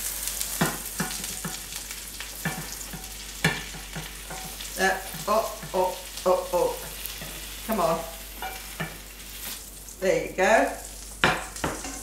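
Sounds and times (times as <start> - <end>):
soft sizzle: 0.0 - 12.0
spatula scraping a frying pan: 2.3 - 5.9, 6.5 - 9.7.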